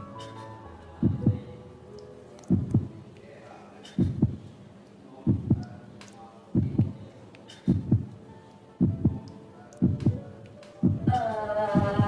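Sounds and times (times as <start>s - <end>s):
heartbeat thumps: 1.0s - 1.5s, 2.5s - 3.0s, 4.0s - 4.5s, 5.3s - 5.8s, 6.6s - 7.0s, 7.7s - 8.2s, 8.8s - 12.0s.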